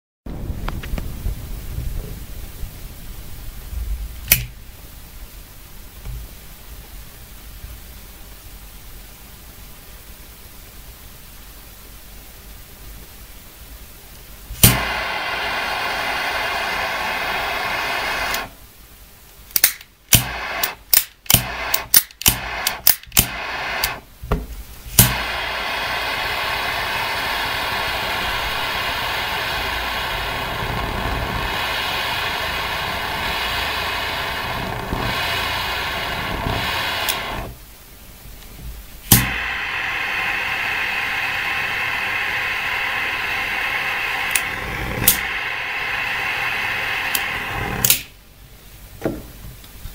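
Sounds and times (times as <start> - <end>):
lighter igniter clicking: 4.3 - 4.6, 19.5 - 24.0, 24.9 - 37.6, 39.1 - 48.1
torch lighter hissing: 4.3 - 4.6, 14.5 - 18.8, 19.5 - 37.7, 39.0 - 48.2.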